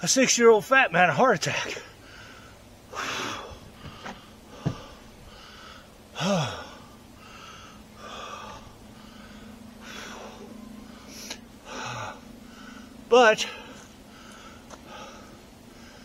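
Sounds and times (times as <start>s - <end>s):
man breathing heavily: 1.5s - 16.0s
man groaning: 6.2s - 6.9s.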